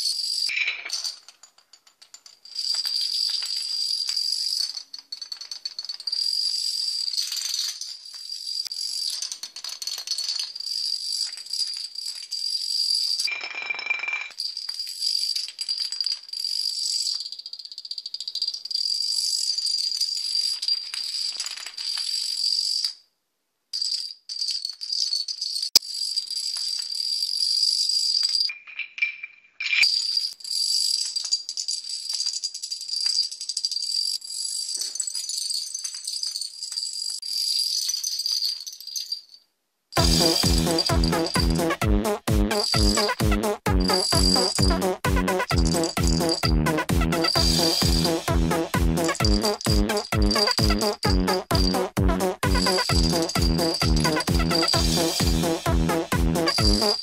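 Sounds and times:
plastic dominoes toppling on wood: 0:00.0 - 0:23.0, 0:23.8 - 0:28.5, 0:29.8 - 0:39.0.

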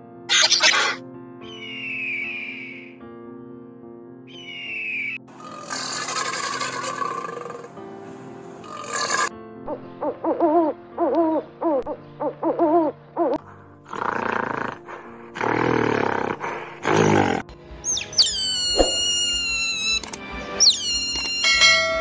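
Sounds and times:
background music: 0:00.0 - 0:22.0
loud harsh animal calls: 0:00.3 - 0:02.8, 0:05.3 - 0:07.8, 0:08.6 - 0:09.3, 0:17.9 - 0:20.0, 0:20.6 - 0:21.8
animal calls rising and falling: 0:04.4 - 0:07.7, 0:08.6 - 0:09.3, 0:17.9 - 0:22.0
high calls sliding downward: 0:17.9 - 0:22.0.

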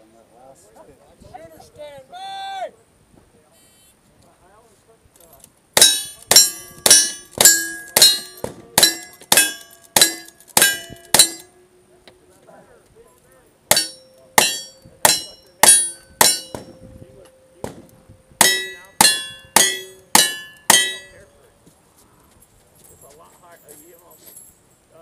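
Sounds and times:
steel target ringing: 0:05.8 - 0:11.8, 0:13.7 - 0:21.4.

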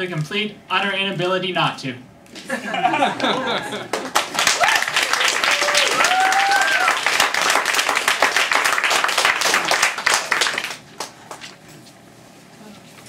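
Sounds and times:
audience clapping: 0:03.2 - 0:11.6
vocal whoop: 0:04.5 - 0:07.0.

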